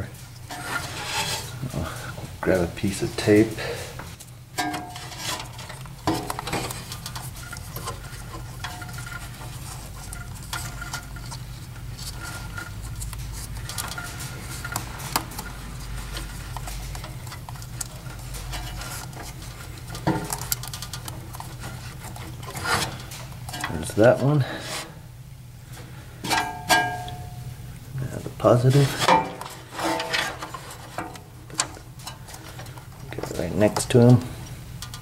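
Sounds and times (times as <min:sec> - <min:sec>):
handling noise: 0:00.0 - 0:24.9.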